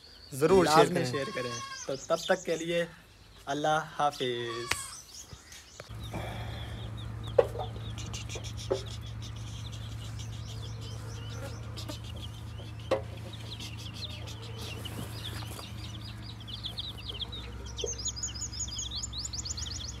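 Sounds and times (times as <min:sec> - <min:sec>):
small birds chirping: 0:00.0 - 0:20.0
chickens clucking: 0:05.8 - 0:20.0
steady low hum: 0:05.9 - 0:20.0.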